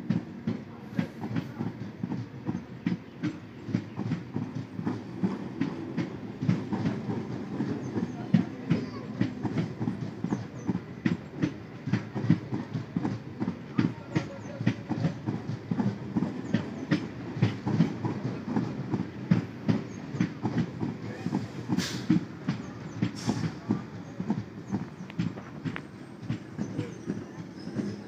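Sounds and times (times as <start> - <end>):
low train rumble: 0.0 - 28.0
train wheels clickety-clack: 0.0 - 28.0
short hiss: 21.8 - 22.1.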